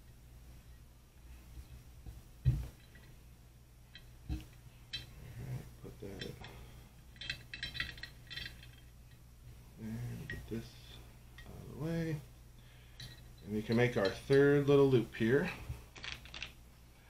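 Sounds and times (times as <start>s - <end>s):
dull thump: 2.0s - 2.8s
light metallic clinks: 2.5s - 3.2s, 3.9s - 5.2s, 5.9s - 9.3s, 12.8s - 15.6s.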